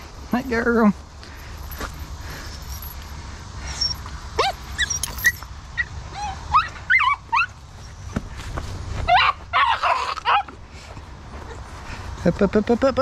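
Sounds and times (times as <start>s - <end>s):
puppies whining and yipping: 3.6s - 8.2s, 9.1s - 10.6s.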